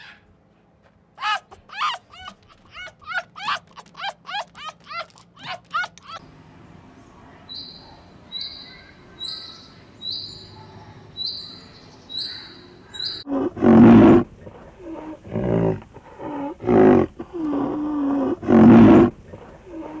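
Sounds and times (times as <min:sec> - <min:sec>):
rhinoceros deep calls: 0:12.1 - 0:20.0.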